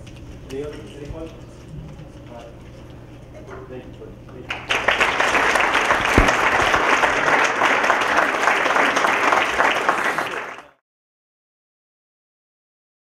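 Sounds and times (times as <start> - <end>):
audience applauding: 4.5 - 10.8
low thump: 6.2 - 6.8.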